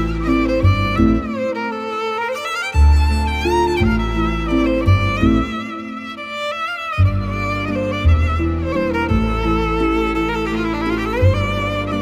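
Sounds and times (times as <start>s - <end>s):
instrumental music: 0.0s - 12.0s.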